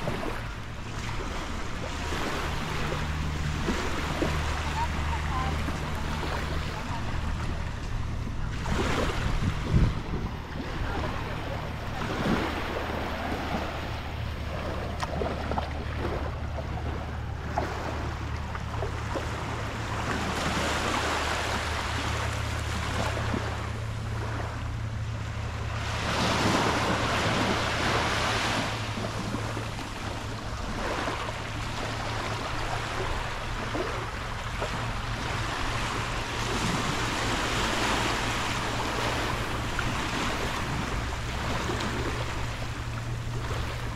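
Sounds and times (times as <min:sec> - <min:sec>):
wind buffeting microphone: 0:00.0 - 0:20.7
steady low hum: 0:00.0 - 0:43.9
waves washing onto beach: 0:00.0 - 0:43.9.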